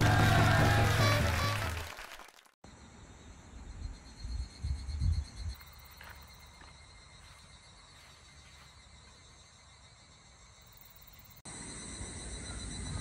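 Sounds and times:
insects chirring: 2.7s - 13.0s.

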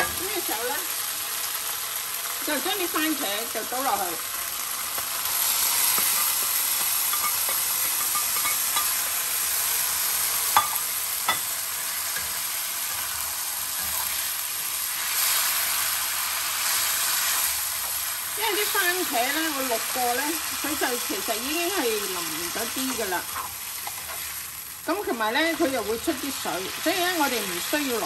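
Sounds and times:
tomatoes sizzling in a wok: 0.0s - 28.0s
spatula scraping a pan: 22.8s - 24.4s.

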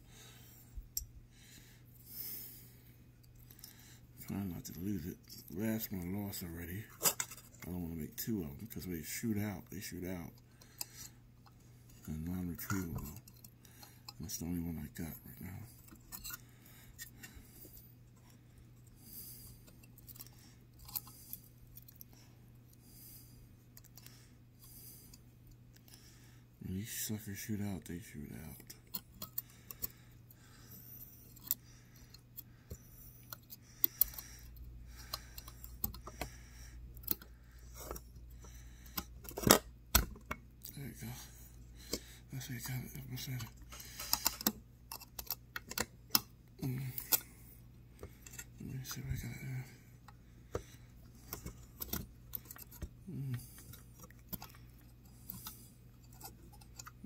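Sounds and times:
low steady hum: 0.0s - 57.0s
metal clip clicks and scrapes: 15.8s - 17.4s, 19.6s - 22.1s, 31.1s - 36.3s, 38.8s - 40.4s, 41.9s - 47.3s, 48.0s - 49.4s, 50.5s - 57.0s.

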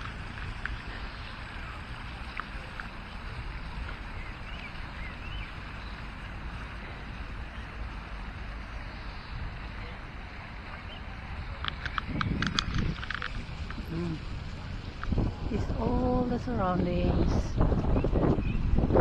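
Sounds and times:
fountain splashing: 0.0s - 19.0s
wind buffeting microphone: 9.3s - 19.0s.

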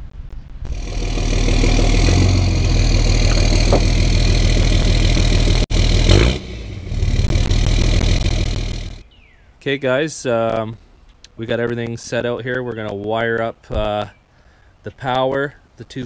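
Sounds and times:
diesel engine idling: 0.7s - 9.0s.

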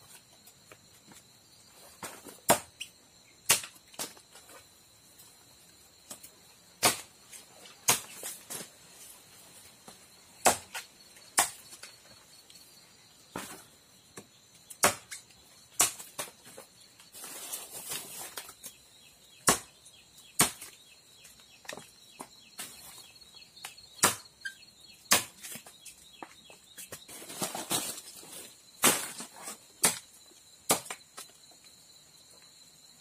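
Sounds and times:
machete chopping tree bark: 6.8s - 7.1s, 10.4s - 10.8s, 14.8s - 15.2s, 19.4s - 19.7s, 20.4s - 20.7s, 24.0s - 24.3s, 25.1s - 25.5s.

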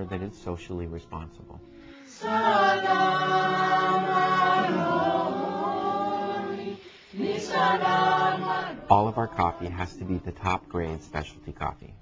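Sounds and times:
choir holding long notes: 0.0s - 11.9s.

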